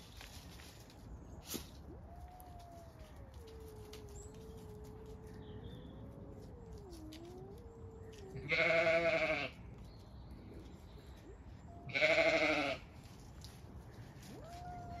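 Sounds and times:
cats caterwauling: 0:01.7 - 0:09.4, 0:11.7 - 0:12.8, 0:13.9 - 0:15.0.

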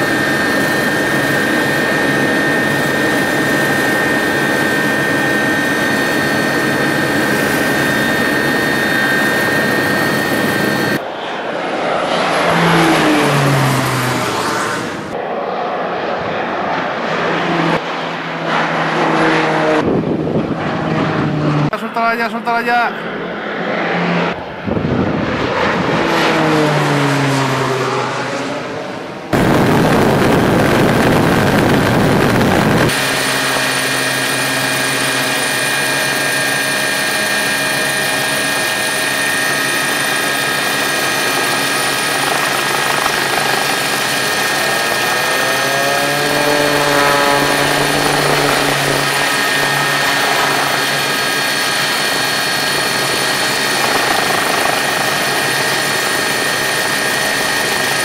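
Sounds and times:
turbine whine: 0:00.0 - 0:58.0
turboprop plane passing: 0:00.0 - 0:58.0
loud rushing noise: 0:44.8 - 0:53.8.

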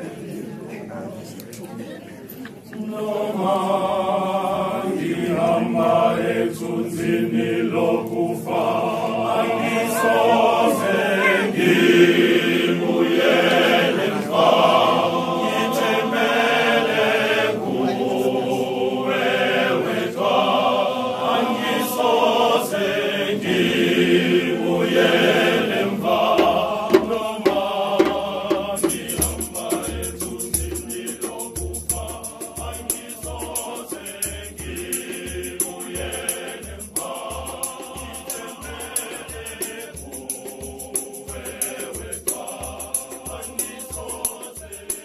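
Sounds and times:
choir singing a hymn: 0:00.0 - 0:00.6, 0:02.6 - 0:45.0
shaker rattling: 0:28.6 - 0:45.0.

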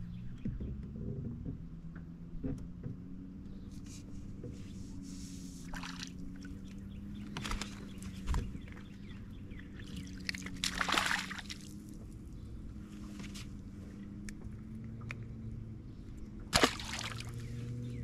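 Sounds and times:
steady low hum: 0:00.0 - 0:18.0
water splashing against boat: 0:04.3 - 0:13.8, 0:16.4 - 0:17.8.

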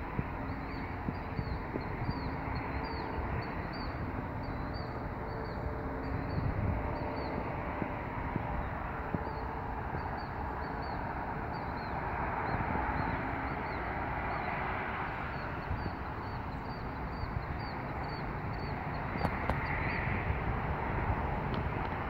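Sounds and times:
outdoor rushing background: 0:00.0 - 0:22.0.

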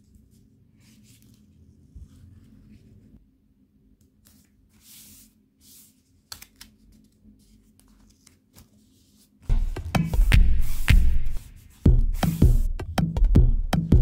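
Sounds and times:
electronic music with drum beat: 0:09.5 - 0:14.0.

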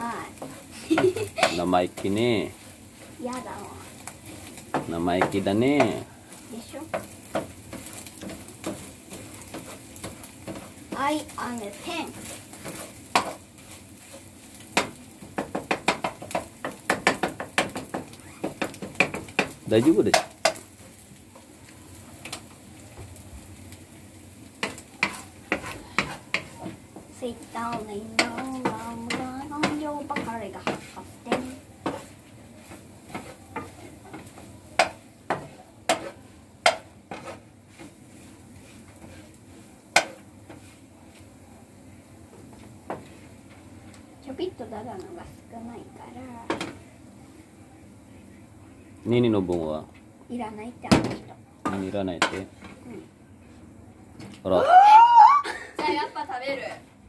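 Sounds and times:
faint frying sizzle: 0:00.0 - 0:57.0
spatula scraping eggs in pan: 0:00.3 - 0:21.6, 0:24.5 - 0:41.3.

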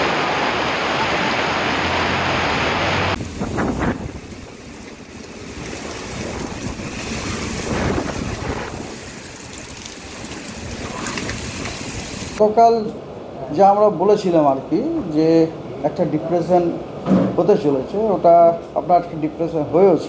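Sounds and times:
heavy rain pouring: 0:00.0 - 0:12.4
gusting wind buffeting microphone: 0:03.1 - 0:12.4.

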